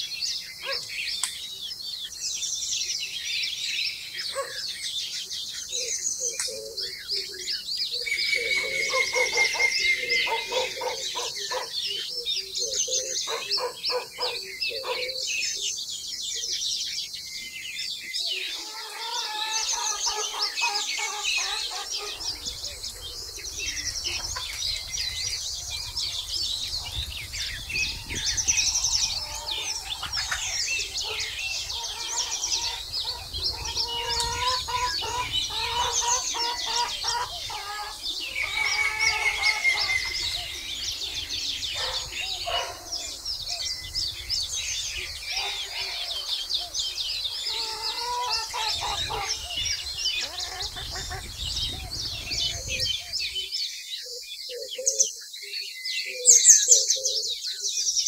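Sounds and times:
songbirds chirping: 0.0s - 58.0s
chickens clucking: 8.2s - 11.9s, 18.3s - 43.8s, 44.8s - 53.2s.

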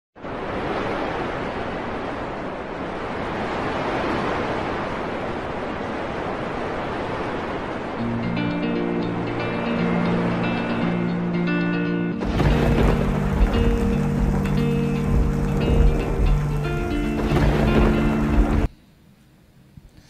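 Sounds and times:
music with low held notes: 8.0s - 18.7s
storm rushing noise: 12.2s - 18.7s.

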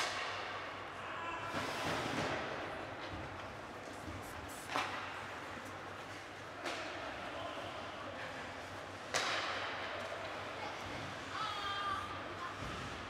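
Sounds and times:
puck or stick crack: 0.0s - 0.6s, 4.6s - 5.3s, 6.6s - 7.2s, 9.0s - 10.4s.

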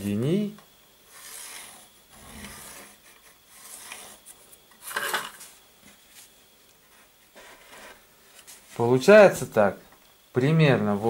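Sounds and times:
pencil scratching on wooden board: 1.1s - 4.3s
ruler sliding across board: 1.1s - 5.4s.

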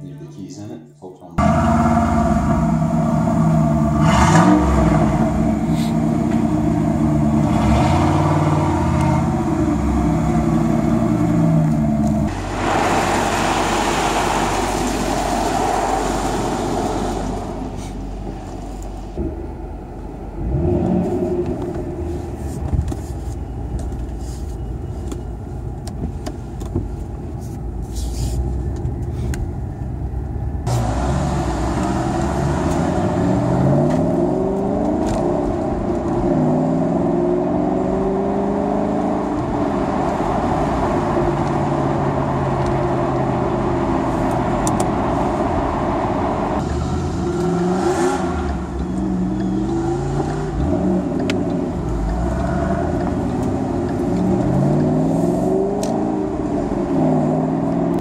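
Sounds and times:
car wash rushing: 1.4s - 19.0s, 30.7s - 33.9s
car engine running and revving: 1.4s - 27.7s, 28.4s - 58.0s.

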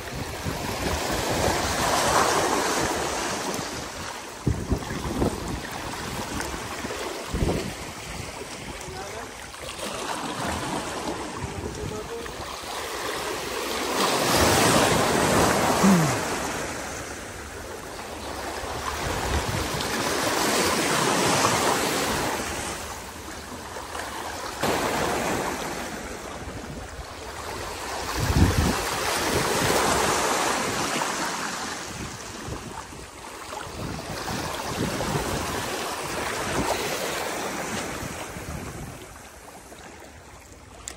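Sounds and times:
wind on microphone: 0.0s - 9.1s, 10.4s - 12.5s, 18.7s - 20.1s, 26.3s - 30.9s, 31.8s - 37.0s, 37.6s - 39.4s
small waves lapping: 0.0s - 40.9s.

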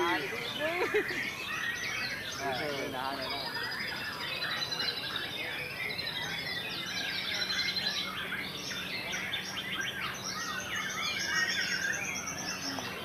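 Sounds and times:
birds singing whistles and trills: 0.0s - 13.0s.

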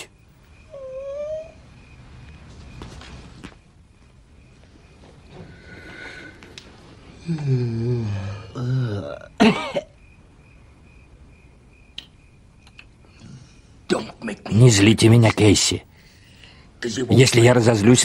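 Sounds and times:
man grumbling in throat: 7.3s - 9.6s.

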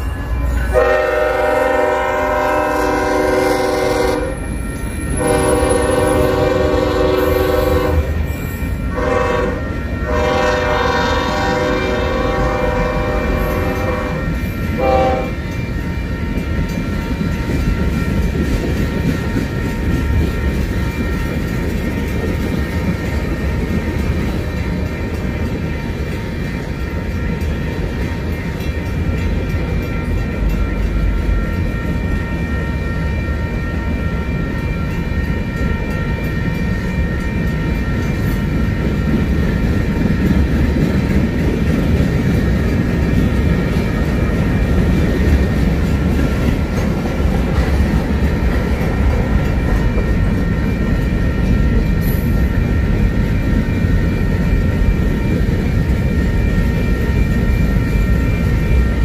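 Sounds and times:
high-pitched ringing tone: 0.0s - 1.7s, 4.2s - 6.5s, 7.2s - 10.8s, 12.7s - 40.6s, 47.8s - 59.0s
train wheels rumbling on rail: 0.0s - 59.0s.

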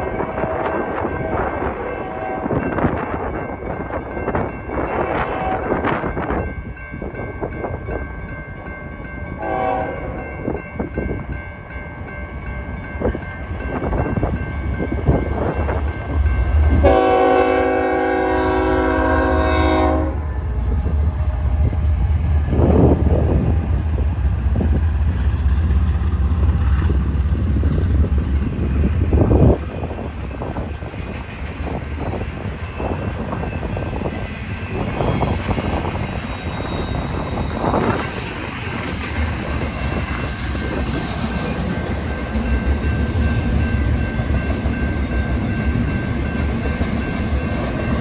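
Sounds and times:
crossing signal bell ringing: 0.0s - 20.6s, 22.6s - 48.0s
passing train rumble: 0.0s - 48.0s
locomotive horn blasts: 2.0s - 2.6s, 5.0s - 5.8s, 9.4s - 10.2s, 16.7s - 20.3s.

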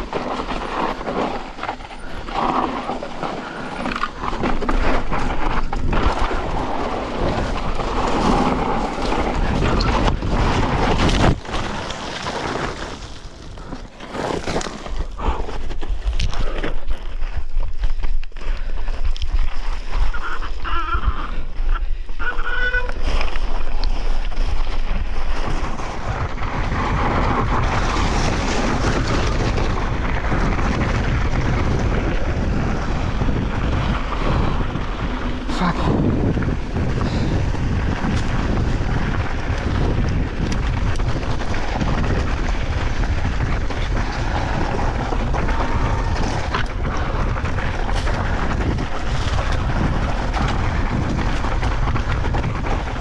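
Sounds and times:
wind rushing over microphone: 0.0s - 13.7s, 18.6s - 53.0s
tyres grinding over stones: 0.0s - 21.3s, 22.2s - 53.0s
bike knocking on rocks: 36.0s - 53.0s.

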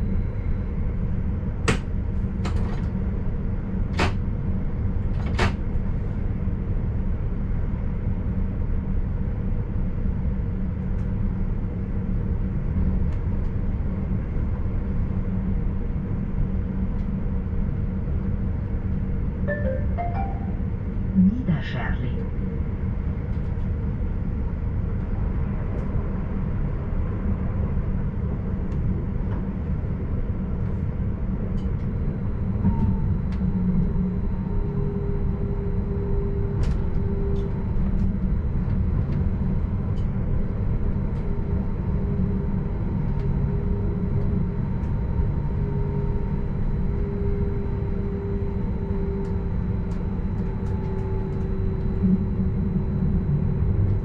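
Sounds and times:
wheels rumbling on rail: 22.2s - 54.0s
faint traction motor whine: 22.3s - 54.0s.

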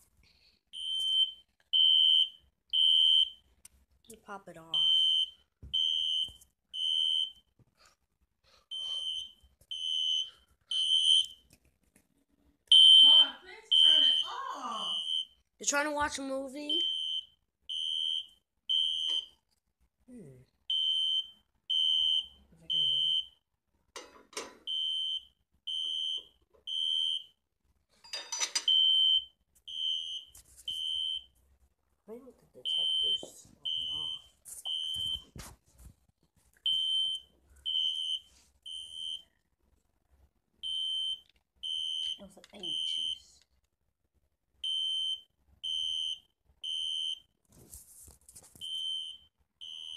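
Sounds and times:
smoke alarm beeping: 0.7s - 3.5s, 4.7s - 7.6s, 8.7s - 11.4s, 12.7s - 15.4s, 16.7s - 19.4s, 20.7s - 23.4s, 24.6s - 27.4s, 28.6s - 31.4s, 32.6s - 35.4s, 36.6s - 39.4s, 40.6s - 43.3s, 44.6s - 47.4s, 48.6s - 49.9s.

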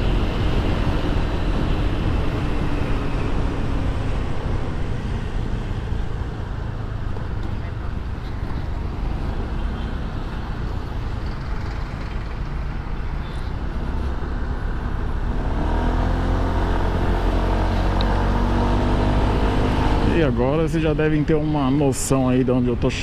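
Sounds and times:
scooter engine accelerating: 15.1s - 20.3s.

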